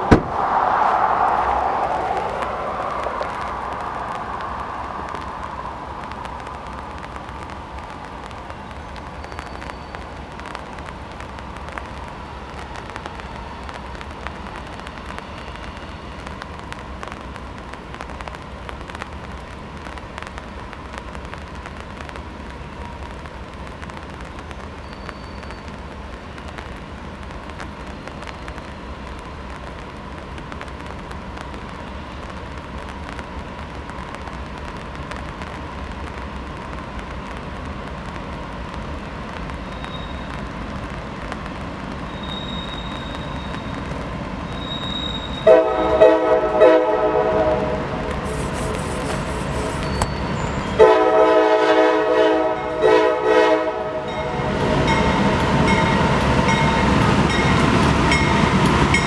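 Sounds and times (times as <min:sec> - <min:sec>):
locomotive rumbling: 0:00.0 - 0:11.2, 0:38.0 - 0:51.0
faint crackles: 0:00.0 - 0:51.1
steady hiss: 0:00.0 - 0:51.1.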